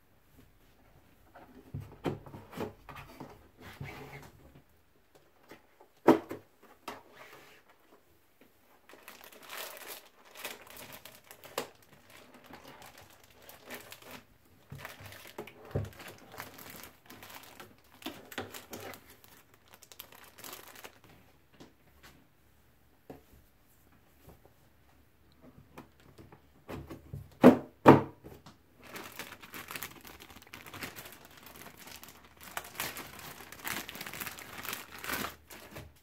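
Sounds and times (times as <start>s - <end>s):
plastic bag crinkling: 8.9s - 21.2s, 28.8s - 36.0s.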